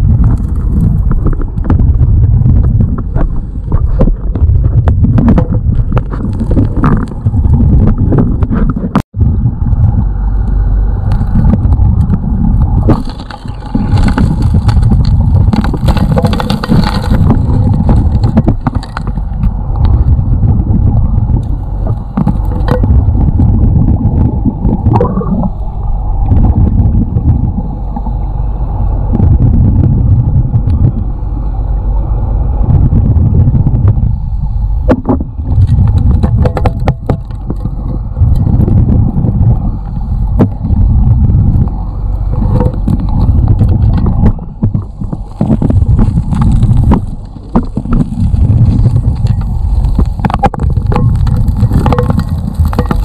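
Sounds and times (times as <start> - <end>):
gravel and stones clicking: 0.0 - 9.0, 11.0 - 27.6, 34.9 - 53.0
dredge engine drone underwater: 0.0 - 53.0.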